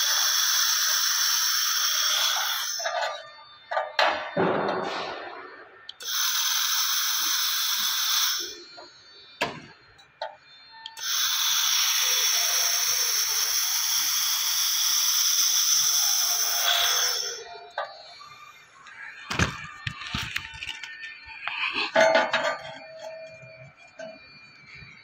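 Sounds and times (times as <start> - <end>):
laser welding hiss: 0.0 - 3.0, 5.9 - 8.6, 11.0 - 17.5.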